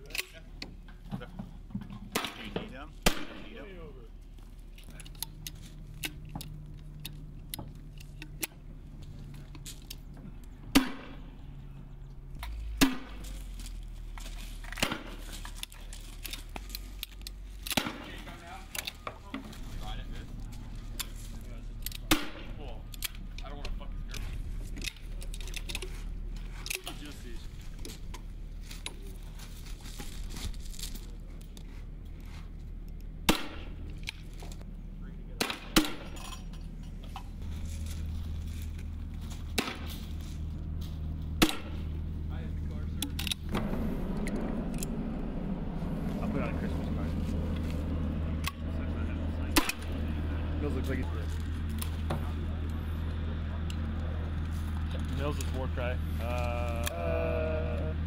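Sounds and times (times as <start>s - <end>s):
low steady hum: 0.0s - 58.0s
gunshots: 2.2s - 3.6s, 10.7s - 11.3s
gear rustling and clicking: 4.2s - 10.6s, 12.2s - 34.7s, 36.2s - 48.8s
metallic clicks of weapons: 22.9s - 25.9s, 43.0s - 43.5s.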